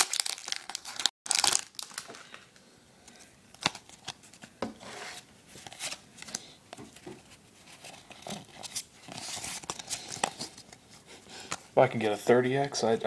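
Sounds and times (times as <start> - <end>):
foil pack rustling: 0.0 - 2.4.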